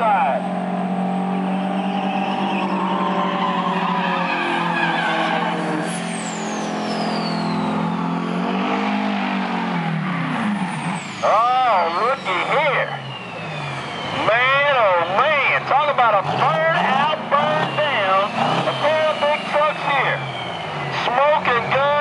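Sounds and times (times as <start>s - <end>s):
truck diesel engines droning: 0.0s - 22.0s
high whistle gliding down: 1.3s - 8.1s.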